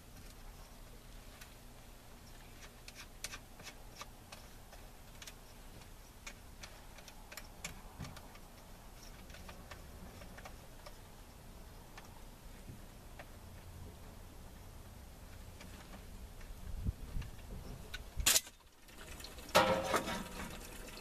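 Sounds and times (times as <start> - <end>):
light plastic clicks and ticks: 2.4 - 11.0.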